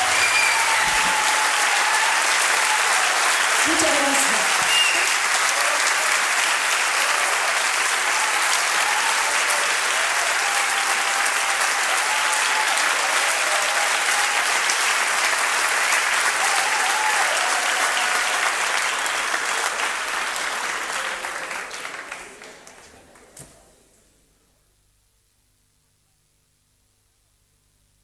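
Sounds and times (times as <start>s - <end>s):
audience applauding: 0.0s - 23.4s.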